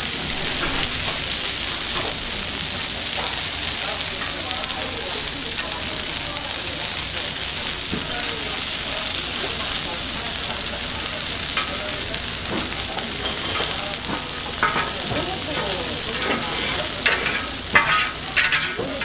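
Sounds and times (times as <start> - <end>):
oil sizzling on a griddle: 0.0 - 19.0
metal spatula scraping a griddle: 11.5 - 11.8, 12.4 - 19.0.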